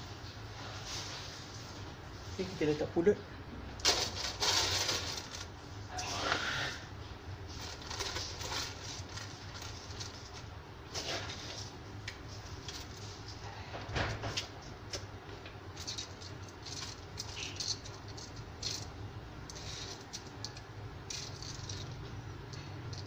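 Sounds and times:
metal tray clattering: 3.8 - 5.5, 7.6 - 10.3.

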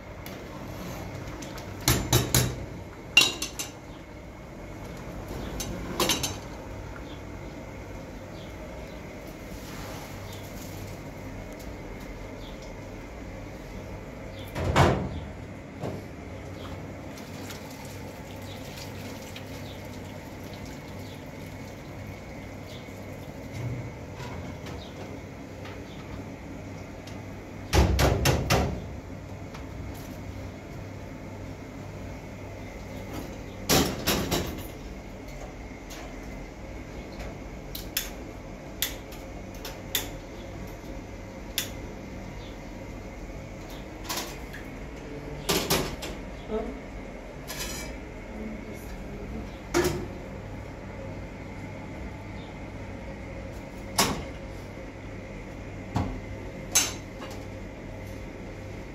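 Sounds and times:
dishes clattering: 3.2 - 3.8
tap water running into bowls: 17.0 - 23.6.

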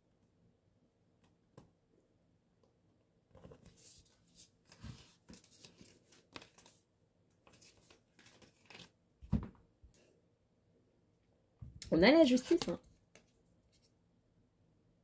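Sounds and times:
cards being shuffled: 3.4 - 6.8, 7.4 - 9.4
dull thump: 9.2 - 9.6.

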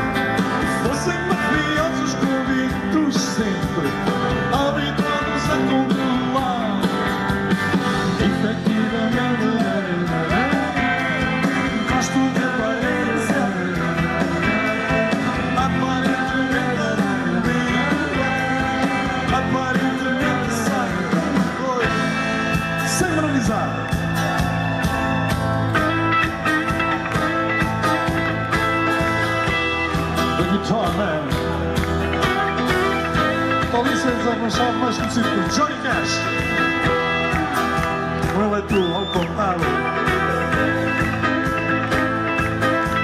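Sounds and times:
drums: 0.0 - 43.0
electric and acoustic guitars: 0.0 - 43.0
keyboards: 0.0 - 43.0
man singing lead: 0.5 - 7.2, 7.9 - 24.5, 30.2 - 31.6, 33.2 - 41.6.

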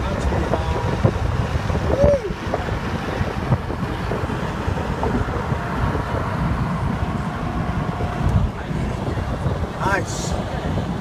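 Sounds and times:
car road and engine noise: 0.0 - 11.0
wind rushing over microphone: 0.0 - 11.0.

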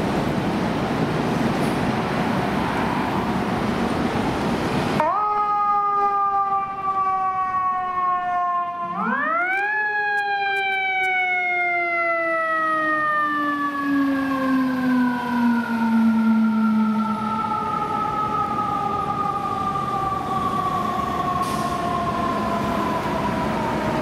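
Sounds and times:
mechanical fire engine siren: 5.0 - 24.0.

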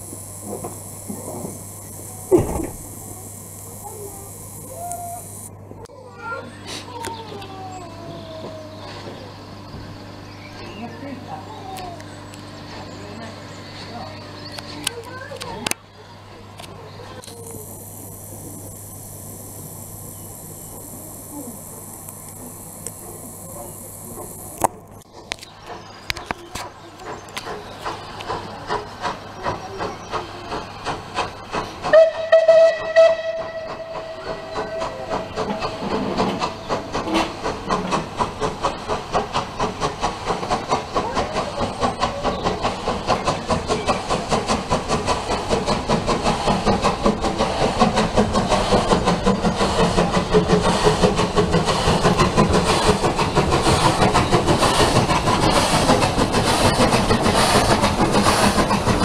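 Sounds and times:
steam locomotive exhaust beats: 0.0 - 5.8, 8.0 - 59.0
steam whistle blast: 31.9 - 36.0.

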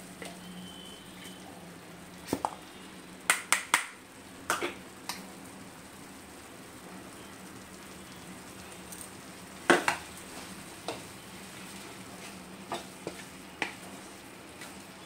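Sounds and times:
wooden spatula stirring in pan: 7.8 - 15.0.

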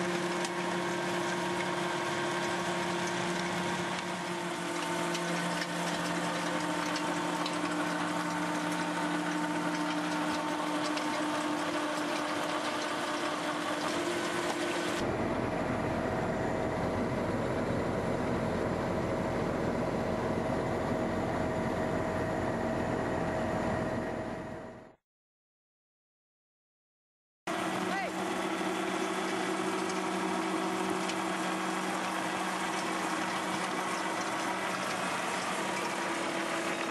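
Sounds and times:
shredder grinding brush: 0.0 - 15.1, 27.6 - 36.9
deep rough machine noise: 0.0 - 24.9, 27.5 - 36.9.

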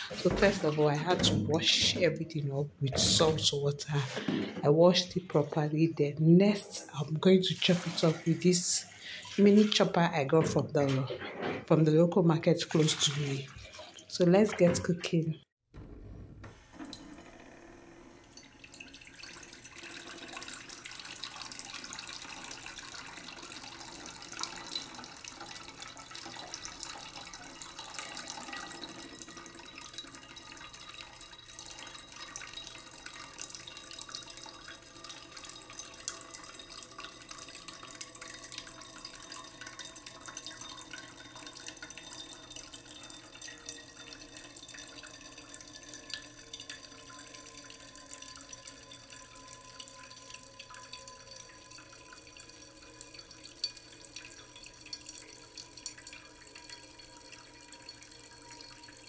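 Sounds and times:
tap water running into colander: 0.0 - 5.8, 6.4 - 11.1, 12.1 - 14.9, 18.2 - 59.0
hands rinsing peppers splashing: 7.4 - 11.0, 12.6 - 15.0.

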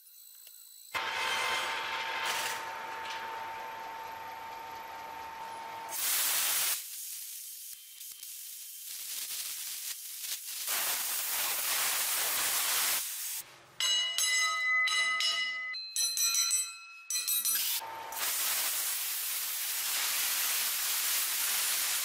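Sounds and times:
plasma cutter hissing: 5.9 - 13.4, 18.1 - 22.0
high ringing tones: 13.8 - 18.1.

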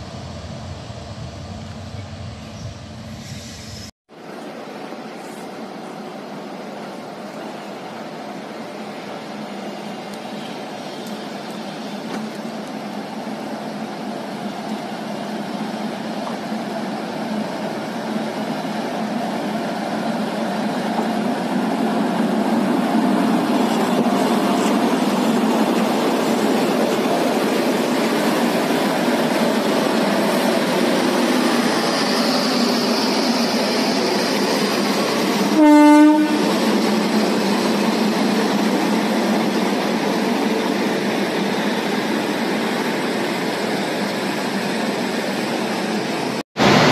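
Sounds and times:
electric locomotive running: 4.3 - 46.9
loud train horn blast: 35.5 - 36.6.

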